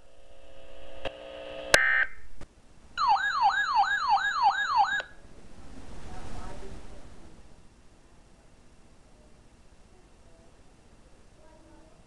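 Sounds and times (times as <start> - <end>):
warbling alert siren: 3.0 - 5.2.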